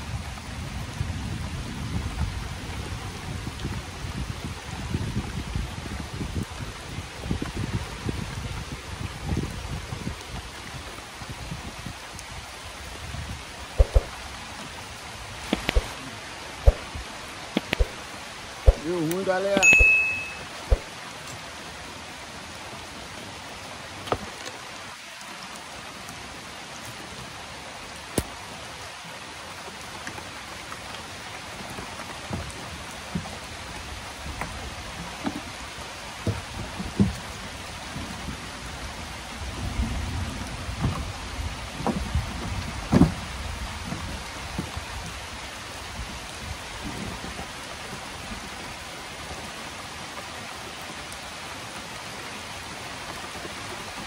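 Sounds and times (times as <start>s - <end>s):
steady rain falling: 0.0s - 54.0s
loud thumps: 13.8s - 14.1s, 16.6s - 16.9s
sharp taps of raindrops: 13.8s - 14.2s, 15.4s - 21.5s, 23.9s - 26.2s, 28.0s - 28.6s, 29.6s - 38.4s, 40.4s - 45.2s.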